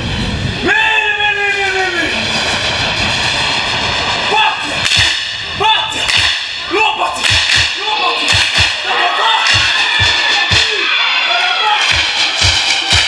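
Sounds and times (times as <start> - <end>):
man's long held shout: 0.6 - 2.2
sharp hand claps: 6.1 - 6.5, 7.2 - 8.8, 9.4 - 10.9, 11.8 - 13.0
group shouts: 6.7 - 12.3.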